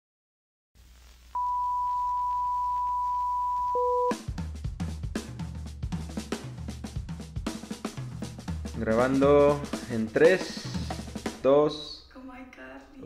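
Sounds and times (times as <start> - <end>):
high test-tone beep: 1.4 - 4.2
music with drum-kit beat: 3.8 - 11.5.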